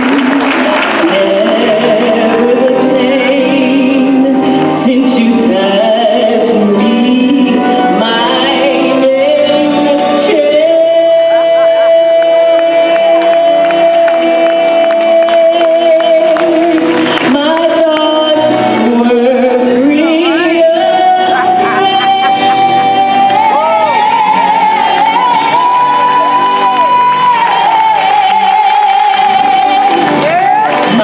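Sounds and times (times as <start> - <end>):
woman singing solo: 0.0 - 31.0
gospel choir singing: 19.9 - 31.0.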